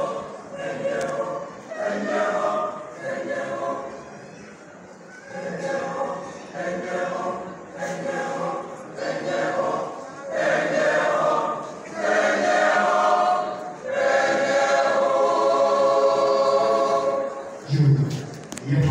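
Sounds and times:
choir singing a hymn: 0:00.0 - 0:04.4, 0:05.2 - 0:17.7.

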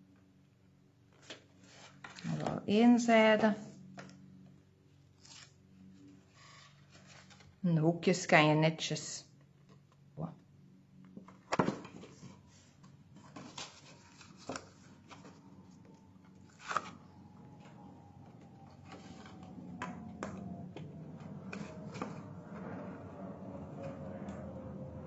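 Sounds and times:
paper rustling: 0:11.7 - 0:15.8.

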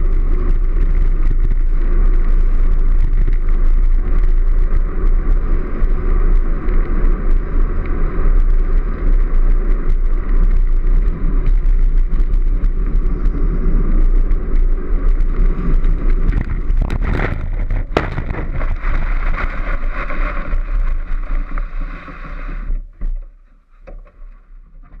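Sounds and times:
wheels rumbling on road: 0:00.0 - 0:25.0
wind buffeting microphone: 0:00.0 - 0:25.0
hard knocks: 0:17.9 - 0:18.7.

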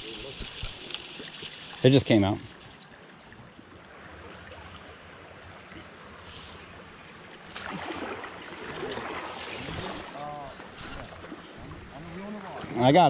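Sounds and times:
creek water running over rocks: 0:00.0 - 0:03.4, 0:04.0 - 0:13.0.

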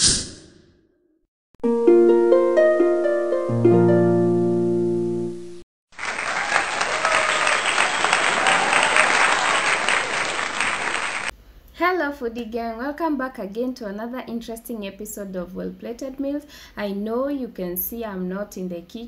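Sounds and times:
plucked harp arpeggio: 0:01.6 - 0:05.3
crowd applause: 0:05.9 - 0:11.3.

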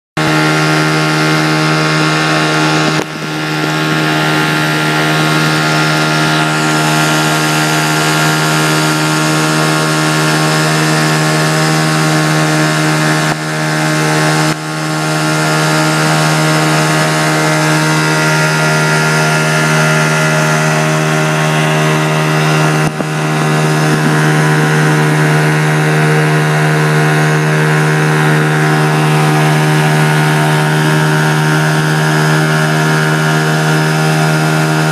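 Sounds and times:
outboard motor running: 0:00.2 - 0:34.9.

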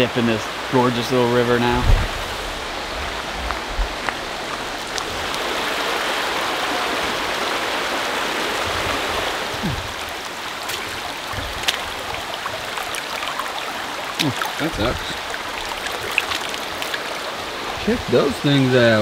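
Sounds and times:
river rushing over stones: 0:00.0 - 0:19.0
faint low thumps: 0:01.6 - 0:04.8.

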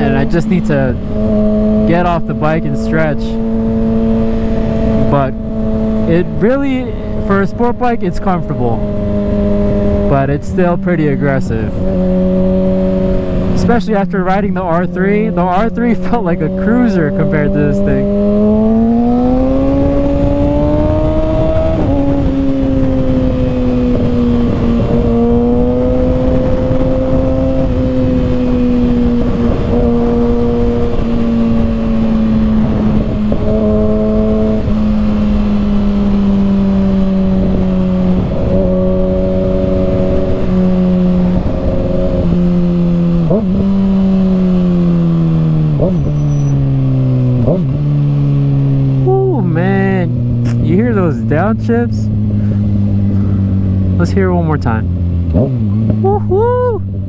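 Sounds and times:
wind noise: 0:00.0 - 0:54.0
motorcycle engine: 0:00.0 - 0:57.0
throttle blips downshifting: 0:49.0 - 0:56.9.

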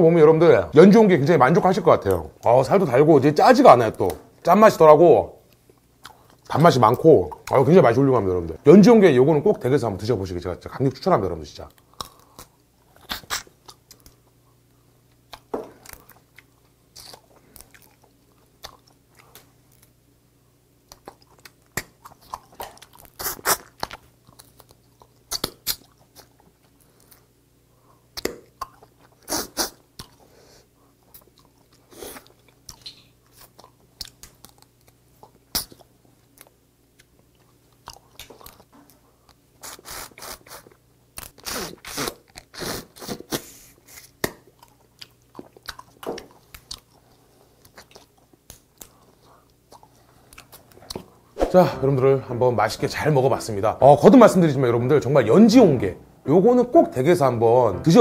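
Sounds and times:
chewing: 0:05.5 - 0:06.5, 0:11.7 - 0:14.4, 0:15.0 - 0:20.0, 0:20.9 - 0:27.3, 0:28.0 - 0:30.3, 0:30.9 - 0:51.2.

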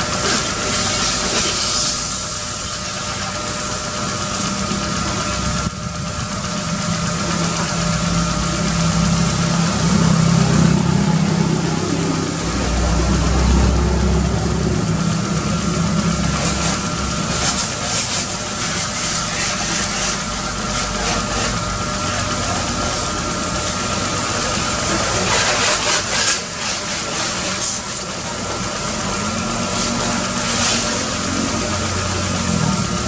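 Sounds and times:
car engine idling: 0:02.3 - 0:25.0.

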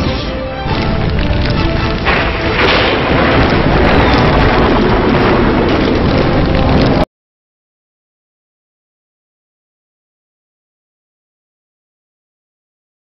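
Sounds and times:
loud dense music with booming hits: 0:00.0 - 0:07.0.

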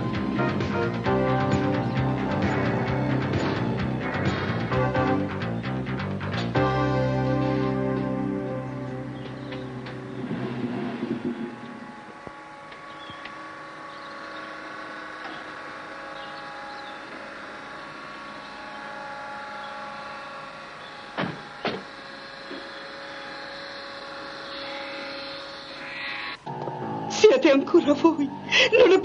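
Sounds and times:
gate motor hum: 0:00.0 - 0:29.0
sharp knocks: 0:21.2 - 0:21.9.

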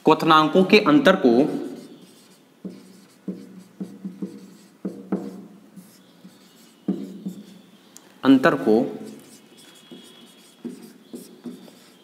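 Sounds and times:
pen writing strokes: 0:01.8 - 0:07.6, 0:09.1 - 0:12.0.

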